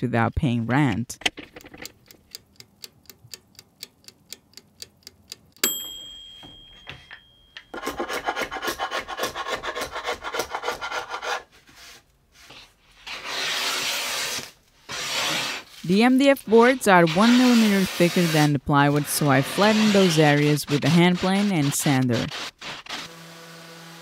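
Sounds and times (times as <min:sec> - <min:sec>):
sharp metallic clink: 0:05.6 - 0:07.8
steel blade scraping wood: 0:07.8 - 0:23.2.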